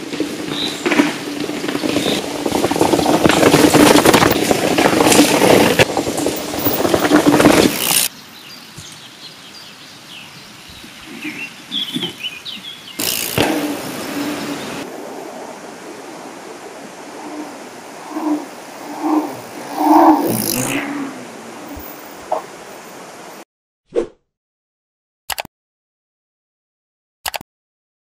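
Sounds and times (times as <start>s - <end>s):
bike tyres rolling on gravel: 0.0s - 23.4s
birds chirping: 0.3s - 2.2s, 6.6s - 23.4s.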